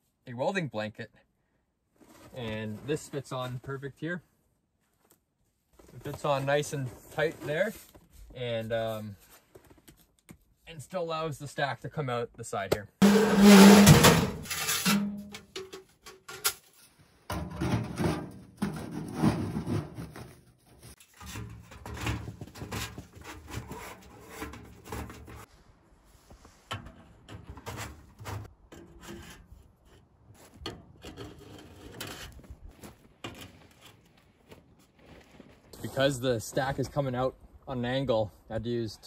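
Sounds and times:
metal pipes scraping: 0:13.0 - 0:25.5, 0:26.7 - 0:32.5.

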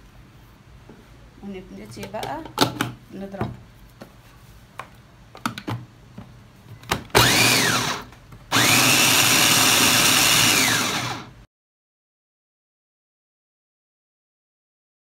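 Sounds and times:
food chopper motor: 0:07.2 - 0:11.4.

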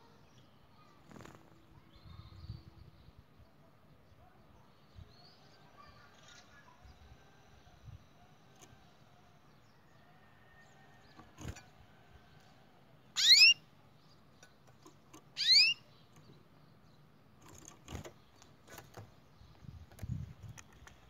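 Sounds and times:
canary tweeting: 0:13.2 - 0:13.7, 0:14.4 - 0:16.4.

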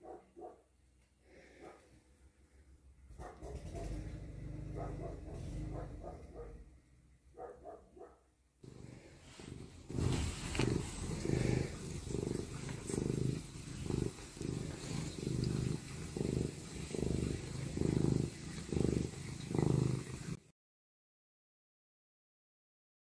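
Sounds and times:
cat purring: 0:02.4 - 0:07.7, 0:08.6 - 0:20.5.

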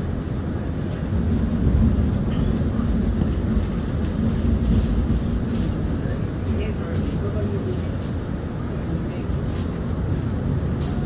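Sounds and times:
tram rumbling on track: 0:00.0 - 0:11.0.

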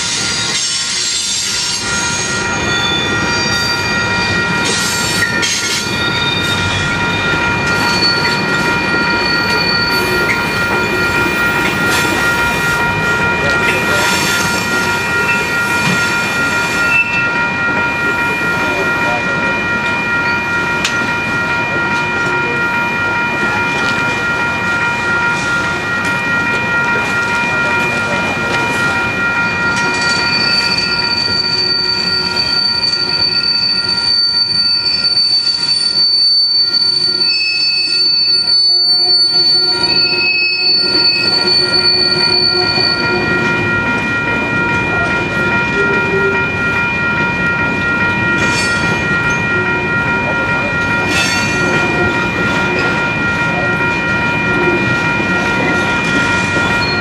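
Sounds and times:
train wheels squealing: 0:00.0 - 0:17.3, 0:29.8 - 0:43.2
rumble of train: 0:00.0 - 0:57.0.

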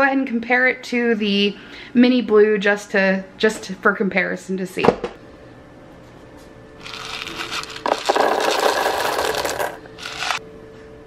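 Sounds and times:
corn kernels pouring into bowl: 0:06.8 - 0:10.4.

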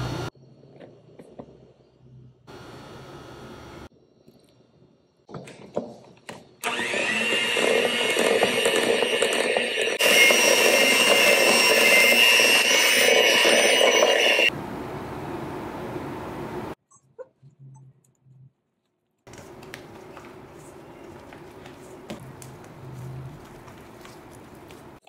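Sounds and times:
electric hand mixer whirring: 0:06.6 - 0:14.5.

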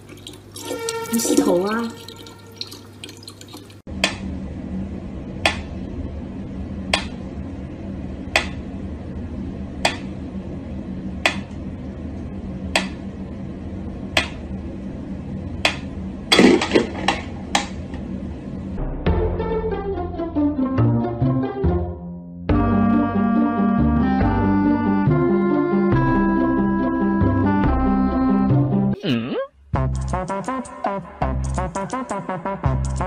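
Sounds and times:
tap water running: 0:00.0 - 0:03.9.

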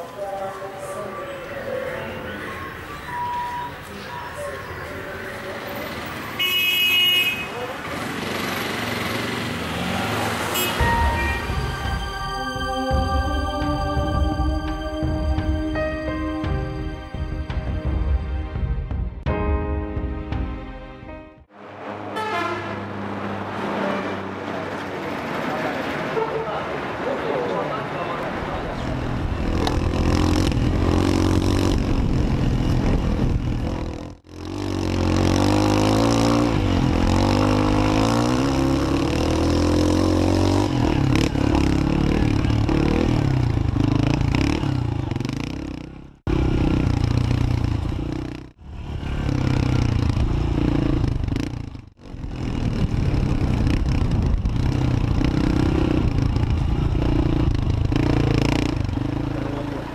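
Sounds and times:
wind and road noise: 0:00.0 - 0:11.9, 0:21.4 - 0:59.9
motorcycle engine running: 0:29.4 - 0:59.9.

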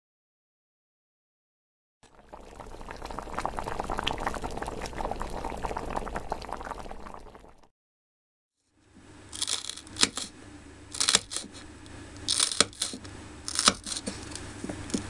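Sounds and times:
hot oil bubbling and sizzling: 0:02.1 - 0:07.7.

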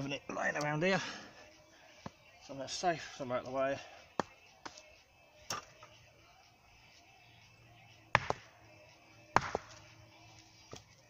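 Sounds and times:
axe chopping log: 0:08.1 - 0:08.5, 0:09.3 - 0:09.9.

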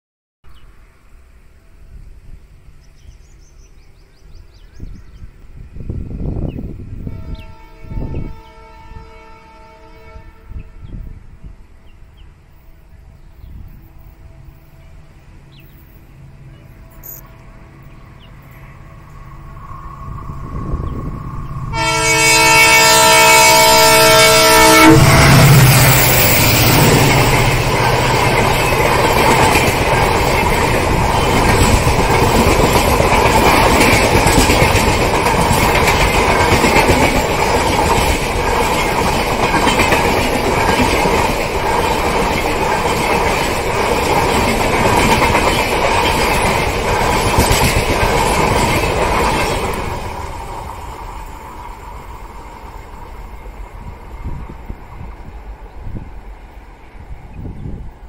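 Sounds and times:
locomotive multi-tone horn: 0:07.0 - 0:11.1, 0:21.7 - 0:27.0
train wheels rolling on rails: 0:11.8 - 0:58.0.

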